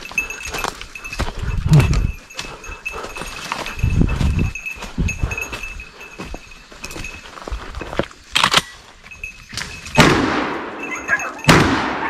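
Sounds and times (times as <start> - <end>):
gunshots with echo: 10.0 - 12.0.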